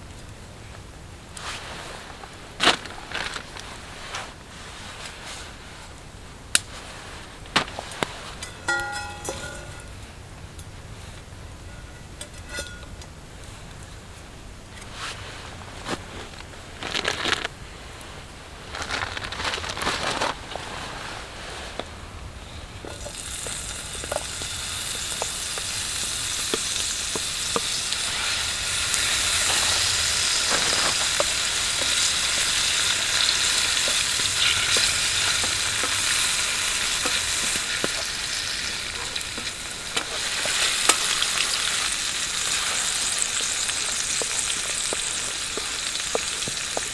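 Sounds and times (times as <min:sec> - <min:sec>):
handling noises: 0:07.3 - 0:10.0
meat sizzling in a frying pan: 0:22.9 - 0:46.9
wooden spatula stirring: 0:26.4 - 0:38.2.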